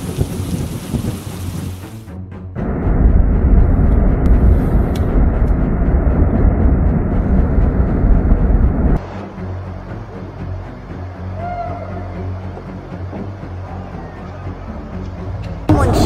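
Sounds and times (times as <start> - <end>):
lava fountain deep rumble: 0.0 - 1.9, 2.7 - 9.0.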